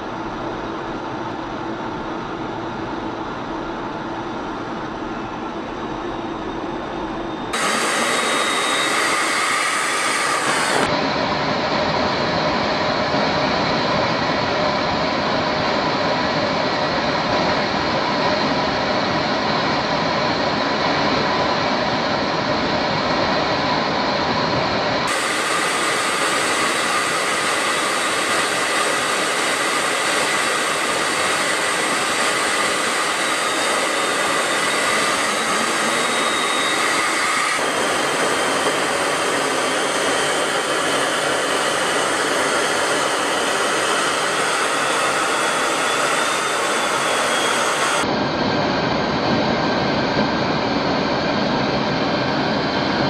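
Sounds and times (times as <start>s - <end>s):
faint high whine: 0.0s - 13.6s, 23.5s - 50.9s
jet engine roar: 0.0s - 53.0s.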